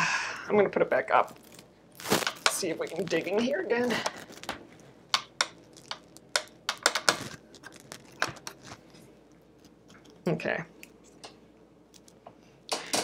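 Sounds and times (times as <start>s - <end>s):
plastic parts clicking and tapping: 5.2s - 7.4s.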